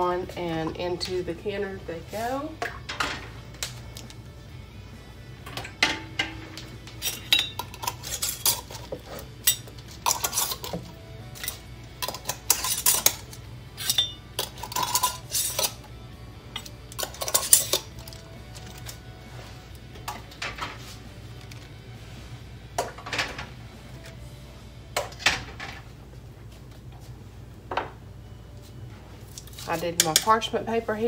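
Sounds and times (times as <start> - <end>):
glass jars clinking: 7.0 - 10.8, 13.8 - 15.8.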